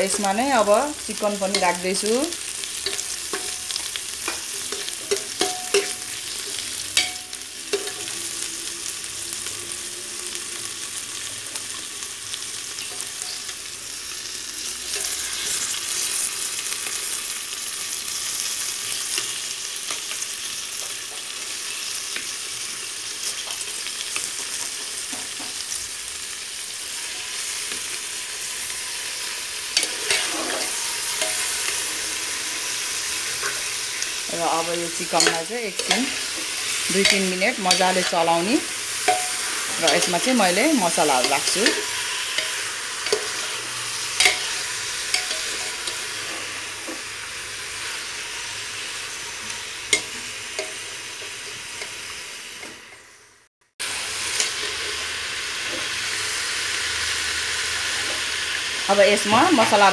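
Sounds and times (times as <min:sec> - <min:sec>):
food sizzling in hot oil: 0:00.0 - 0:59.9
spatula scraping a pot: 0:29.7 - 0:34.1.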